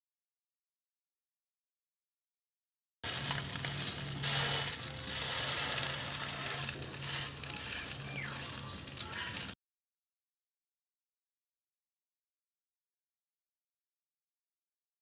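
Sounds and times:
eggs sizzling in a wok: 0:03.0 - 0:09.6
fork scraping a pan: 0:03.1 - 0:09.5.

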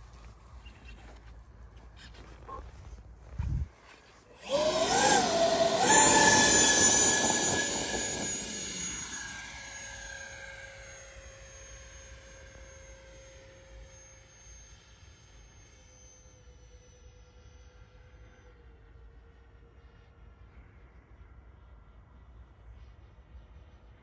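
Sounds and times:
electric ducted fans whining: 0:03.2 - 0:16.4.

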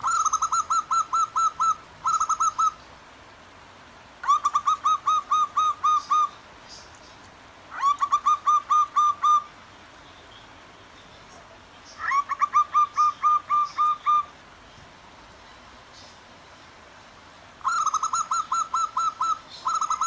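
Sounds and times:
doves cooing: 0:00.0 - 0:02.8, 0:04.2 - 0:06.5, 0:07.7 - 0:09.6, 0:11.5 - 0:14.4, 0:17.6 - 0:20.0.

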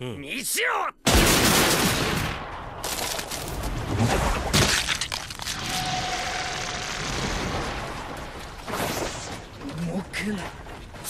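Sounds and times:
mask cracking and breaking: 0:04.5 - 0:06.2.

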